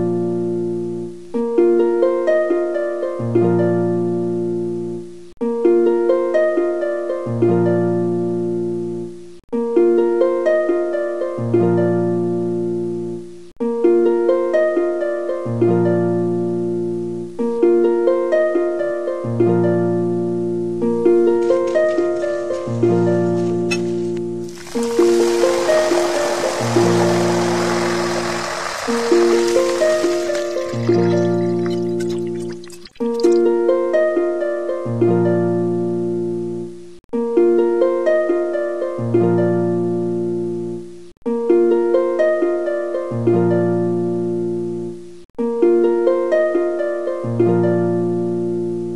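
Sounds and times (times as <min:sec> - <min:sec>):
gentle plucked harp-like music: 0:00.0 - 0:28.4, 0:29.0 - 0:48.9
banana slices deep-frying: 0:21.4 - 0:33.4.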